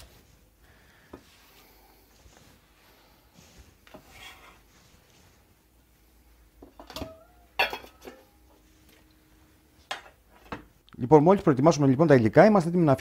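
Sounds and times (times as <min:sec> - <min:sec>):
steel bowl clanking: 0:06.8 - 0:08.6.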